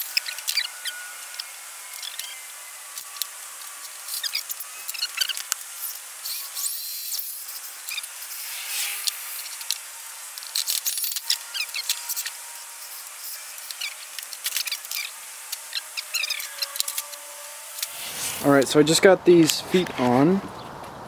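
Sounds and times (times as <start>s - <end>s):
small birds chirping: 0.0s - 3.2s, 3.8s - 9.7s, 11.0s - 12.6s, 13.2s - 17.2s.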